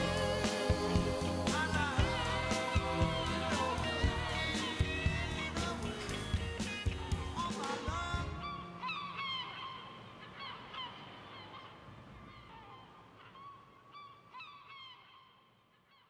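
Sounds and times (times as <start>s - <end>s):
band playing: 0.0s - 7.6s.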